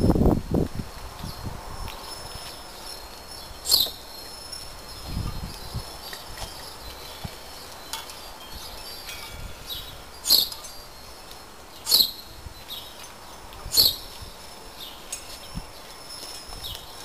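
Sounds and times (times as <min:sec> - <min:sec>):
wind chimes tinkling: 0:02.1 - 0:12.2
sharp high clinks: 0:03.7 - 0:04.6, 0:07.6 - 0:10.9.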